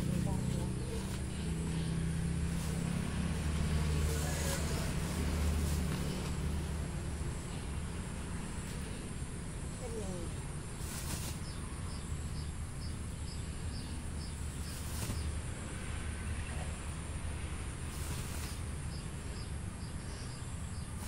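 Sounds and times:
steady low rumble: 0.0 - 21.0
brief rustle: 10.8 - 11.6, 14.7 - 15.3, 17.9 - 18.7.

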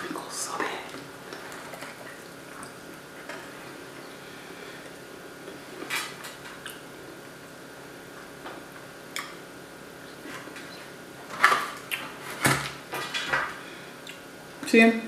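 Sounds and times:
person chewing: 6.5 - 6.9.

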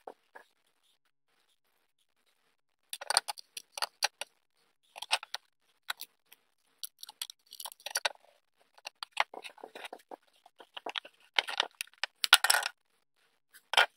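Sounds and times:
screwdriver clicking and scraping: 5.0 - 6.1, 6.8 - 8.2.

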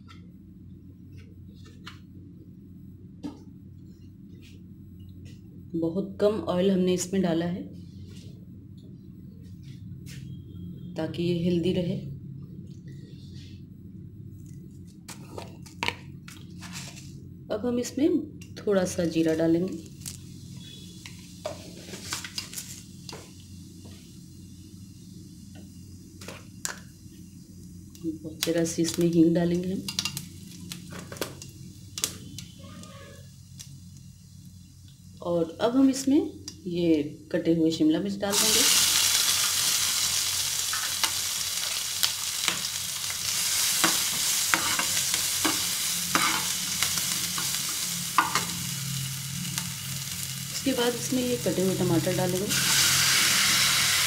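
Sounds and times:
steady low hum: 0.0 - 53.4
vegetables sizzling in oil: 19.1 - 54.0
seeds popping in hot oil: 27.9 - 34.1, 40.6 - 48.8.

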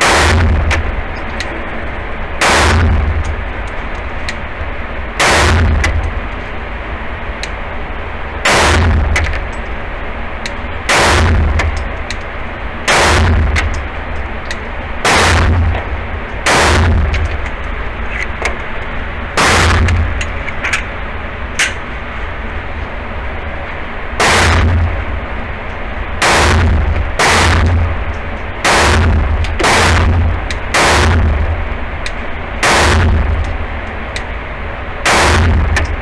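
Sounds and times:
pistol shots indoors: 5.2 - 6.0, 28.6 - 31.5, 32.6 - 33.6.

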